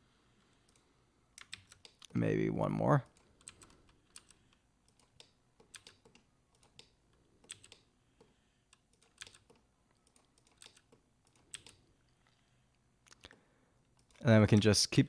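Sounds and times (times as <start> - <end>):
computer keyboard keystrokes: 1.4 - 2.2, 3.1 - 11.8.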